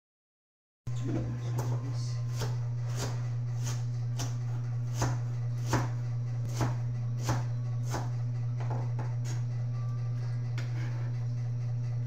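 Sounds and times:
steady low hum: 0:00.9 - 0:12.0
knife chopping on plastic board: 0:01.6 - 0:08.1.

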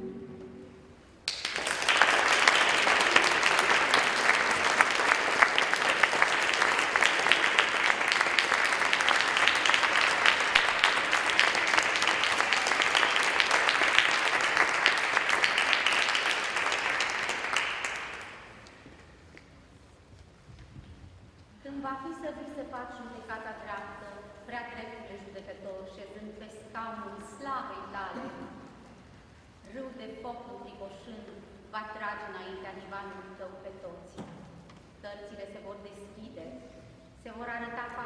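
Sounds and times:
audience applauding: 0:01.2 - 0:19.0.

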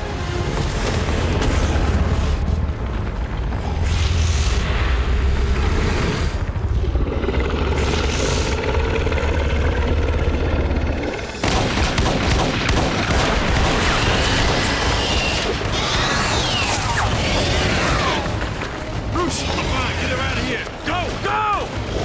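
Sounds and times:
deep steady rumble: 0:04.5 - 0:12.8
rapid handgun fire: 0:11.4 - 0:15.8.

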